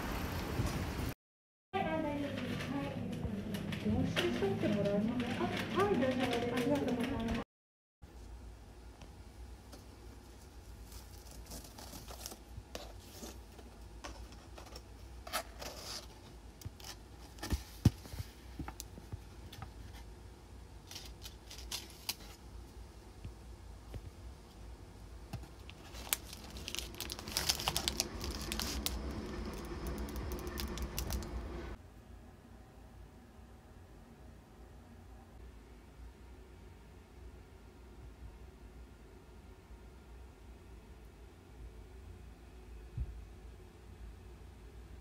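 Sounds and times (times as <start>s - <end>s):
tissue paper rustling and crinkling: 10.4s - 13.5s, 25.4s - 31.4s.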